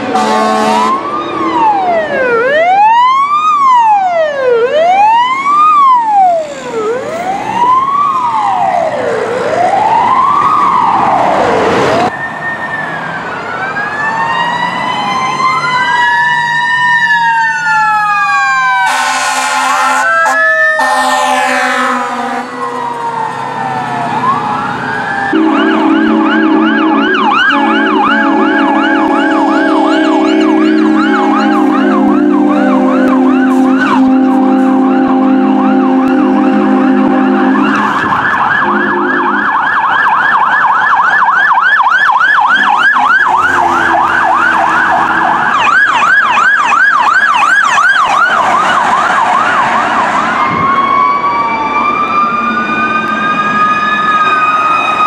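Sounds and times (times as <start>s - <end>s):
fire truck siren wailing and yelping: 0.0s - 55.0s
higher second siren: 0.0s - 55.0s
air horn blasts: 0.1s - 1.0s, 18.8s - 22.6s, 25.3s - 39.6s, 42.6s - 45.4s.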